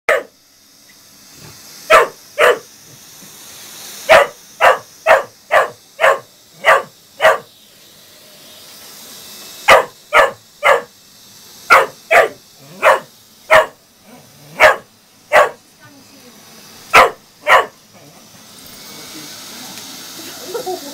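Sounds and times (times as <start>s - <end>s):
dog barking: 0.1s - 0.3s, 1.9s - 2.7s, 4.1s - 7.5s, 9.7s - 10.9s, 11.7s - 15.6s, 16.9s - 17.8s
robot vacuum whirring: 0.1s - 20.9s.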